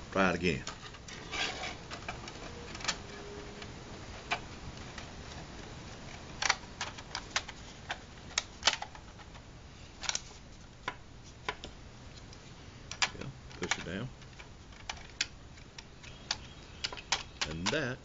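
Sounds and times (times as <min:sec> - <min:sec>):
plastic model parts clicking: 0:10.8 - 0:17.9.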